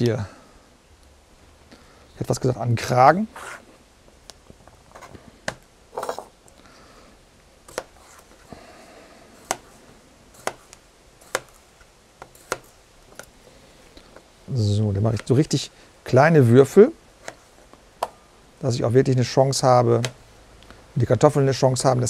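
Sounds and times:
knife tapping cutting board: 10.4 - 10.6, 11.2 - 11.6, 12.2 - 12.7.

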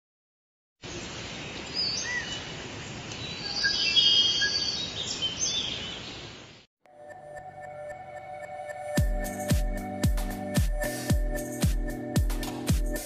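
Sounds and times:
birds chirping and whistling: 1.7 - 2.5, 3.2 - 6.3.

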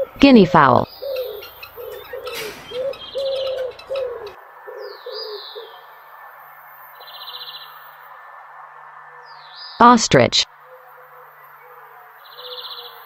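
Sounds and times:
buzzy bird trill: 0.8 - 4.4
thin bird chirps: 0.9 - 5.7
guinea fowl calling: 0.9 - 5.8.

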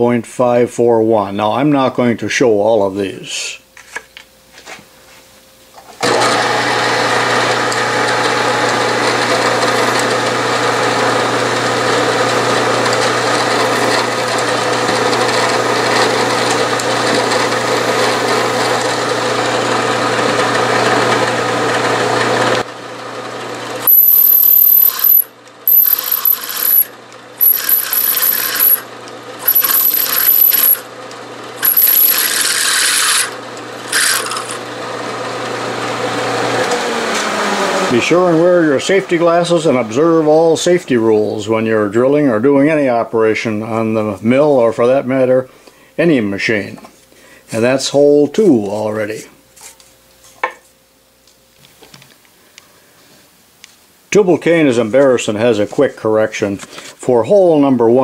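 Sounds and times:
drill bit cutting steel: 6.0 - 22.6, 23.8 - 30.9, 31.6 - 34.7
high drill whine: 6.0 - 22.7, 23.8 - 30.9, 31.6 - 34.7
milling machine spindle running: 6.0 - 38.1.

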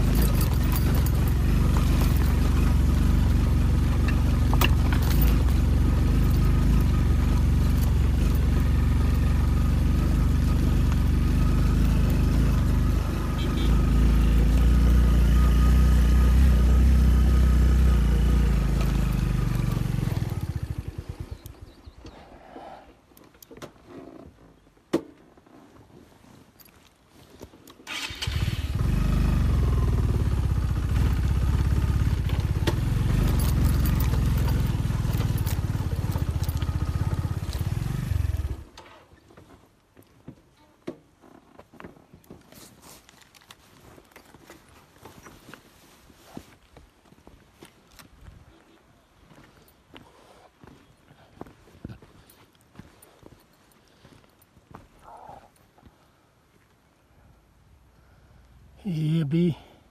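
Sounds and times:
motorcycle engine running: 0.0 - 21.8, 28.0 - 38.8.

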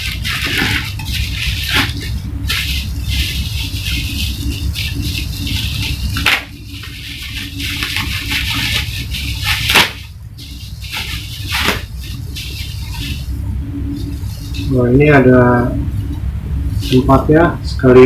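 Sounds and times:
bubble wrap crackles: 0.0 - 15.3
bubble wrap crinkling: 0.0 - 17.2
steady low hum: 0.0 - 18.0.

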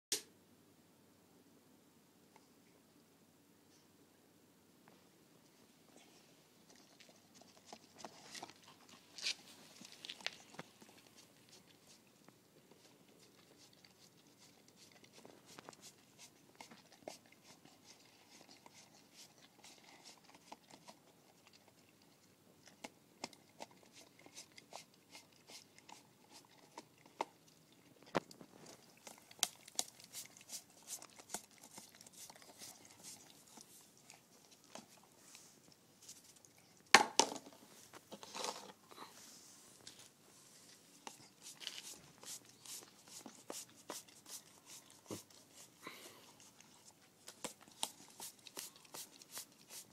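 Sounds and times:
dog licking from tub: 28.7 - 35.0, 46.4 - 49.9.

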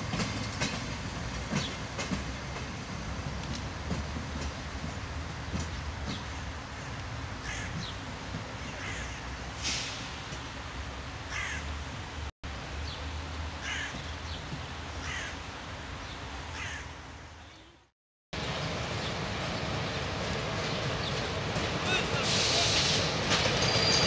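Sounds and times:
distant train rumble: 0.0 - 17.4, 18.4 - 24.0
crows cawing: 7.4 - 7.8, 8.8 - 9.3, 11.3 - 11.7, 13.6 - 14.0, 15.0 - 15.4, 16.5 - 17.0.

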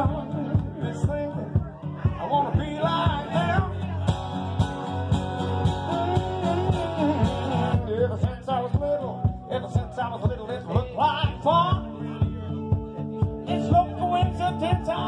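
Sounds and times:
acoustic guitar strumming: 0.0 - 15.0
saxophone melody: 5.6 - 7.9.

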